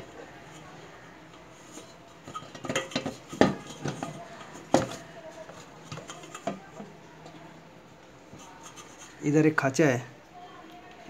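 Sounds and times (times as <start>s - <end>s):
metal plate clicks and scrapes: 8.4s - 9.2s.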